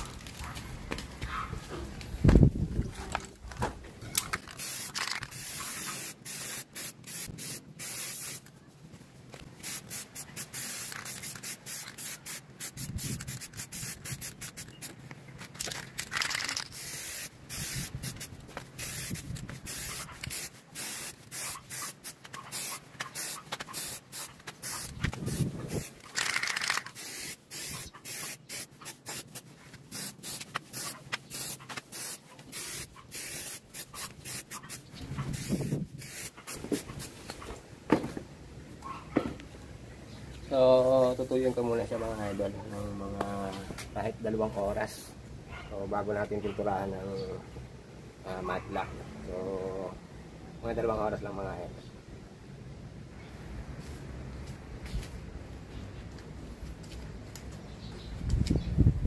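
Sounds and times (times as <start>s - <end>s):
aerosol spray can hissing: 4.5s - 8.4s, 9.6s - 14.9s, 16.6s - 37.1s.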